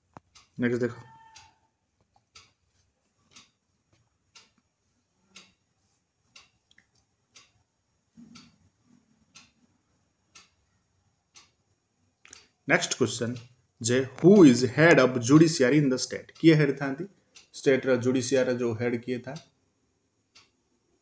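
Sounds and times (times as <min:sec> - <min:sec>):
faint clock ticking: 0:00.0 - 0:21.0.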